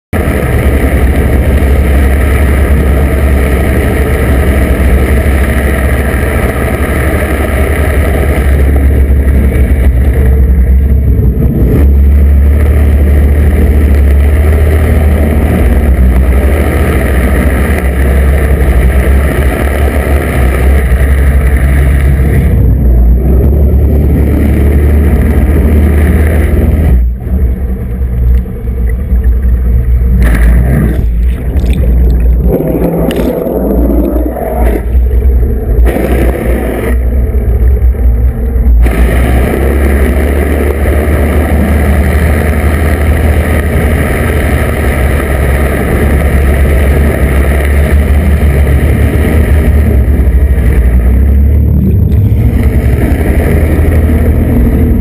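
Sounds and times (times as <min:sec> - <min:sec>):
underwater boat propeller hum: 0:00.1 - 0:55.0
propeller wash and bubbles: 0:27.9 - 0:55.0.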